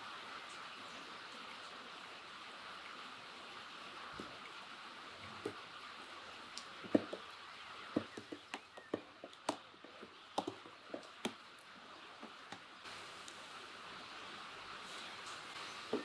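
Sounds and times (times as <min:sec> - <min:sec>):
faint steady hiss: 0:00.0 - 0:09.2, 0:10.0 - 0:16.0
spoon tapping bucket sides: 0:08.0 - 0:11.4.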